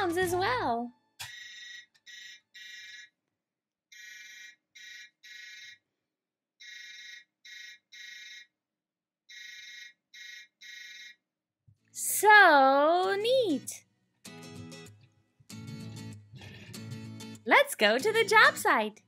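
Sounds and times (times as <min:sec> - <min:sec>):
toy truck electronic beeping: 0:01.2 - 0:03.1, 0:03.9 - 0:05.8, 0:06.6 - 0:08.5, 0:09.3 - 0:11.2.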